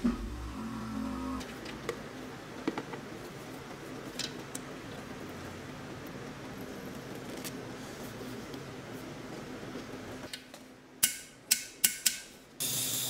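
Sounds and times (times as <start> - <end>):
low shop hum: 0.0 - 13.0
spray hiss: 12.6 - 13.0.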